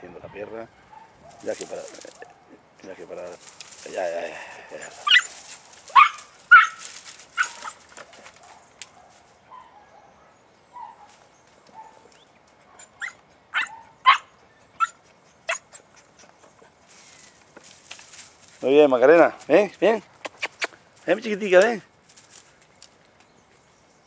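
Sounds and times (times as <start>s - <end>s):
puppy yelping barks: 4.9s - 7.8s, 12.7s - 15.9s.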